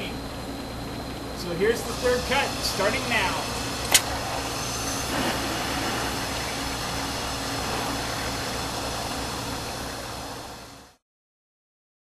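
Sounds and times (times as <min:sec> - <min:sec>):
low hum: 0:00.0 - 0:11.0
waterjet cutting hiss: 0:01.6 - 0:11.0.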